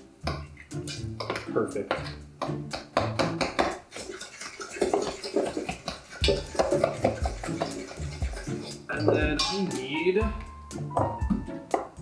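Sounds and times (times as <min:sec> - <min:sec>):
batter squelching in bowl: 0:03.9 - 0:09.0.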